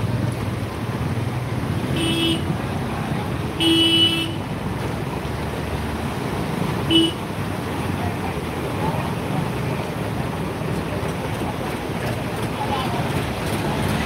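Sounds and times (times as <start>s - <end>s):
rushing floodwater: 0.0s - 14.0s
traffic noise: 0.0s - 14.0s
vehicle horn honking: 1.9s - 2.5s, 3.6s - 4.4s, 6.9s - 7.2s.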